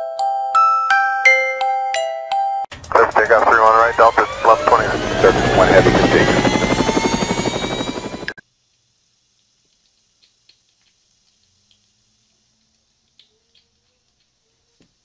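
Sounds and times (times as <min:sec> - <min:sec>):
helicopter rotor: 0:02.8 - 0:08.4
faint clicks: 0:09.4 - 0:14.4.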